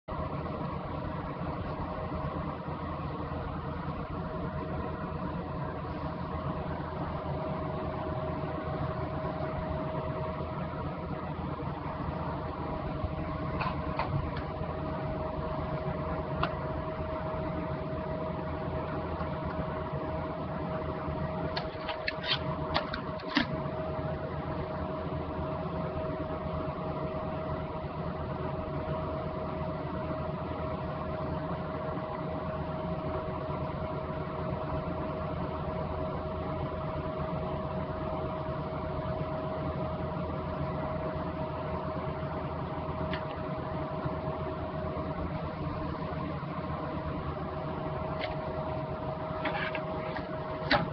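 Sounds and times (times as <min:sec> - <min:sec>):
steady mid-pitched hum: 0:00.0 - 0:50.9.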